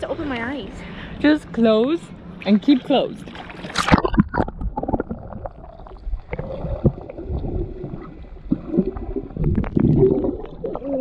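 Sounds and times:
water churning underwater: 3.2s - 11.0s.

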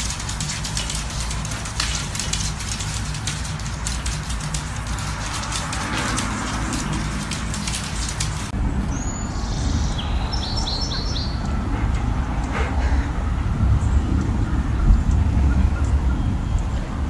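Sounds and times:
dense crackle of clicks: 0.0s - 8.5s
birds chirping: 0.0s - 17.0s.

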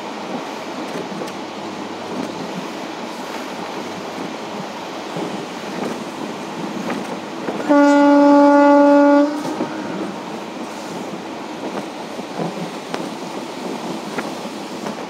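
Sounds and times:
train coach running noise: 0.0s - 15.0s
faint rail click: 0.3s - 1.4s, 10.7s - 15.0s
locomotive horn blast: 7.6s - 10.0s.

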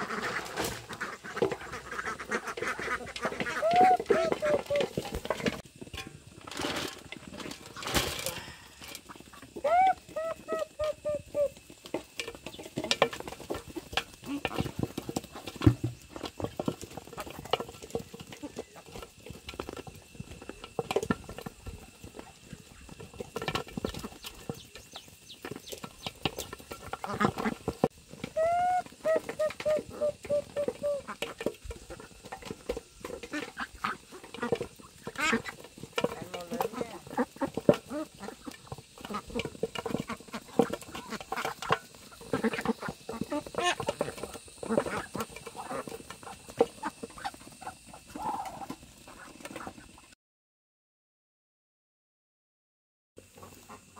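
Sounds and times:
animal call: 1.8s - 5.0s, 9.6s - 11.6s, 28.2s - 31.2s, 46.8s - 49.3s.

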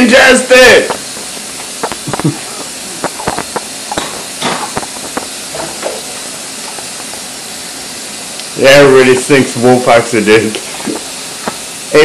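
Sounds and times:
dishes clinking: 1.9s - 6.0s.

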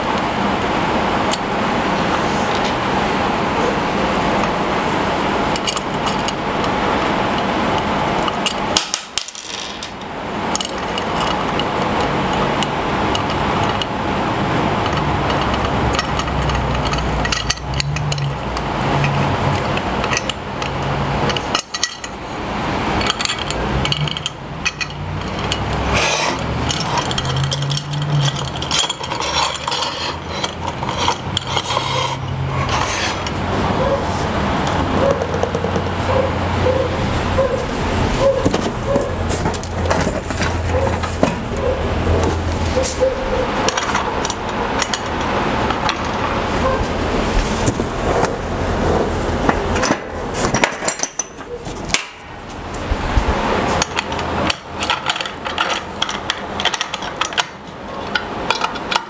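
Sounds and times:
small parts clicking and clattering: 5.5s - 22.3s, 22.9s - 33.6s, 38.2s - 46.8s, 49.1s - 52.8s, 53.6s - 59.0s.

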